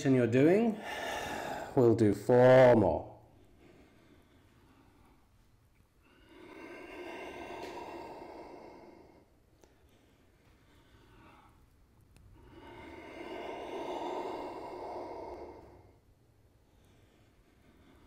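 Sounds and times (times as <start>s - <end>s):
man breathing out: 0.8s - 1.8s, 6.0s - 11.6s, 12.3s - 16.0s.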